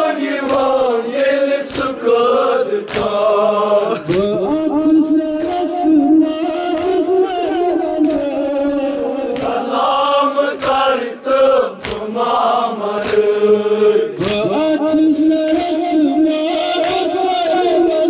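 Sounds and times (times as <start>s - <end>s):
men chanting together: 0.0s - 18.0s
hands slapping on chests: 0.4s - 0.7s, 2.8s - 3.2s, 6.7s - 9.7s, 10.5s - 11.0s, 11.7s - 12.2s, 12.9s - 13.3s, 14.2s - 16.1s.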